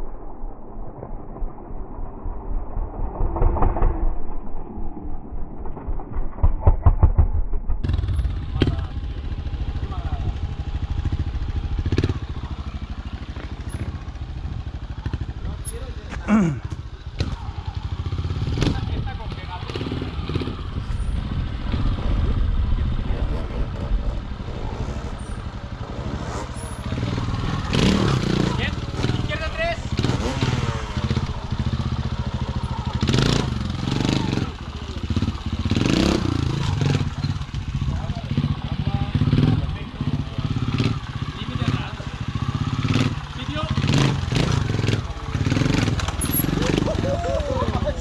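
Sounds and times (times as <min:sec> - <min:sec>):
motorcycle engine idling: 0:07.8 - 0:48.0.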